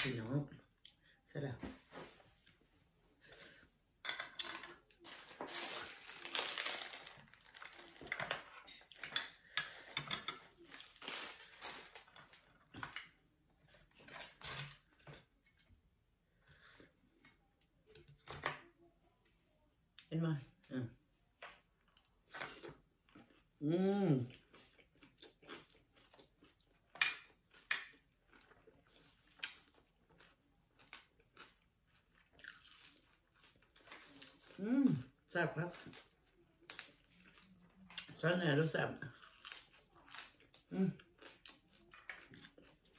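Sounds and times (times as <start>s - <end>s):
plastic bag crinkling: 5.0s - 8.7s, 10.8s - 12.6s
chewing and crunching: 21.5s - 38.2s, 39.0s - 42.9s.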